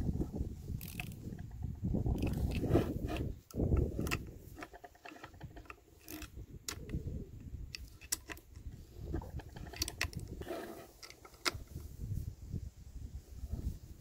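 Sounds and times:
metal parts clicking and clinking: 0.8 - 1.5, 9.3 - 10.3.

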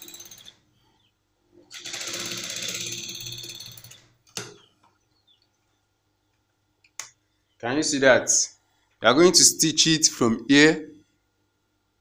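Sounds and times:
sewing machine stitching: 1.7 - 4.0.

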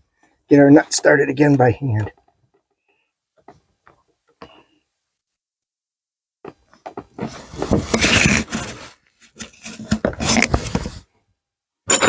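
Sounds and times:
rustling and scraping handling noise: 6.5 - 11.1.

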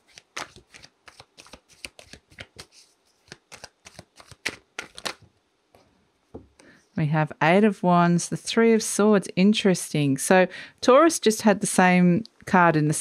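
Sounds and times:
cards being shuffled: 0.0 - 5.3.

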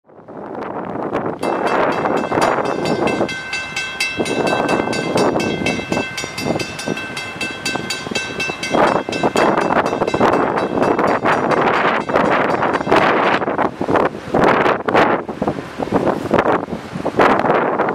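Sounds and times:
diesel train rumbling: 0.3 - 16.7
bell ringing rapidly: 1.4 - 13.4.

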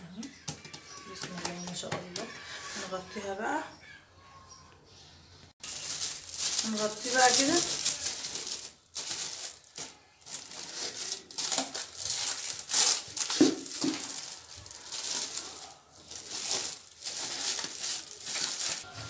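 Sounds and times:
cling film crinkling and rustling: 5.6 - 19.0.

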